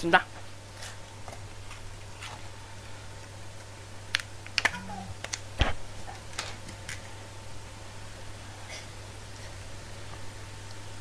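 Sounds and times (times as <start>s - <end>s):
steady low hum: 0.0s - 11.0s
plastic clicks and crinkles: 6.2s - 7.1s.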